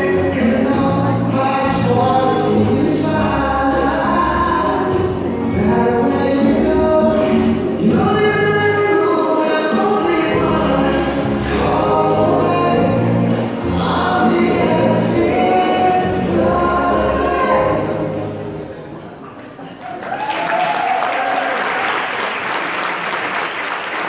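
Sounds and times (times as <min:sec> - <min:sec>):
latin dance music with singing: 0:00.0 - 0:19.0.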